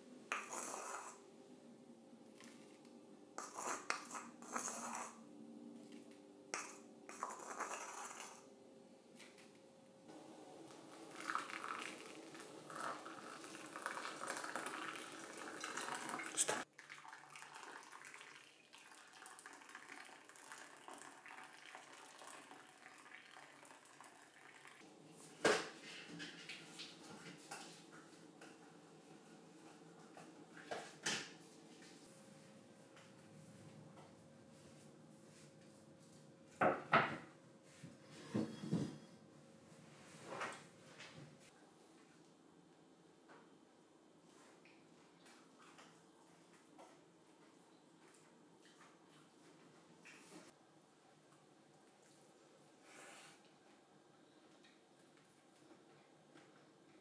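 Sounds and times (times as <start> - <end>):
water trickling onto coffee grounds: 10.2 - 24.8, 51.3 - 52.5.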